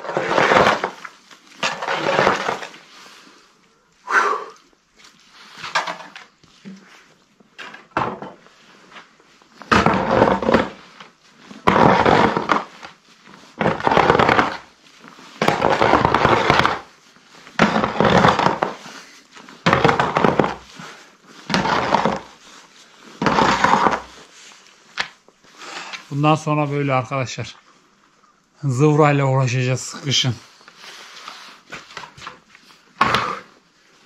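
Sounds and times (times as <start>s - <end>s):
tool scraping mud on cobblestones: 0.0s - 3.2s, 5.0s - 24.4s.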